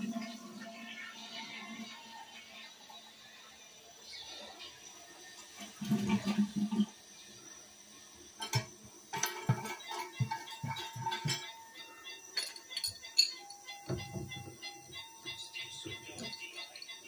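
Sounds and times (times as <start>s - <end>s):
clinks and knocks: 8.4s - 17.0s
background music: 9.2s - 17.0s.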